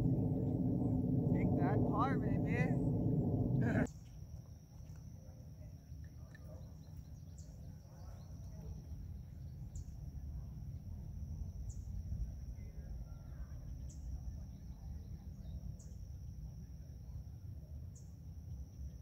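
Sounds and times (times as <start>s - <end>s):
low steady rumble: 0.0s - 3.9s
insect chirp: 0.0s - 19.0s
insect trill: 0.0s - 19.0s.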